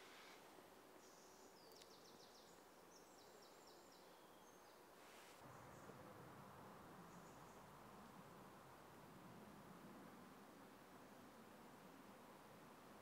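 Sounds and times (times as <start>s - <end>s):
small bird chirping: 1.0s - 4.8s.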